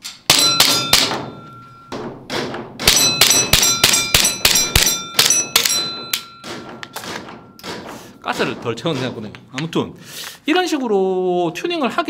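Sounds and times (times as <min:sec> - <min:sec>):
metallic ringing tone: 0:00.3 - 0:02.0, 0:02.9 - 0:08.4.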